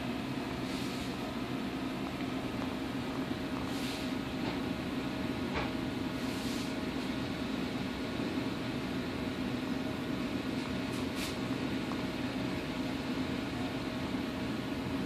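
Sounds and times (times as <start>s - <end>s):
aquarium pumps humming: 0.0s - 15.0s
soft hisses: 0.6s - 1.2s, 3.6s - 4.2s.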